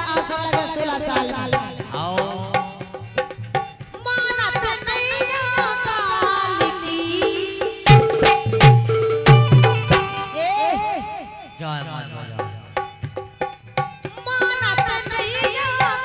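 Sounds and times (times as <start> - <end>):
woman singing into a microphone: 0.0 - 2.8, 4.0 - 7.9, 14.1 - 16.0
dholak drum strokes: 0.0 - 16.0.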